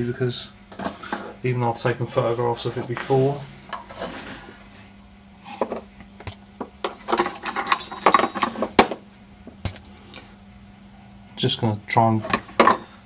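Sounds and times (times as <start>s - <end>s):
faint steady hum: 0.0s - 13.0s
metal parts clinking: 7.2s - 8.6s.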